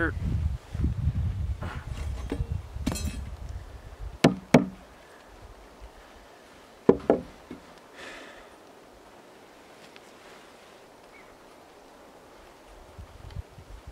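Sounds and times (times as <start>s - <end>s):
chisel struck with sharp knocks: 4.2s - 4.8s, 6.9s - 7.3s.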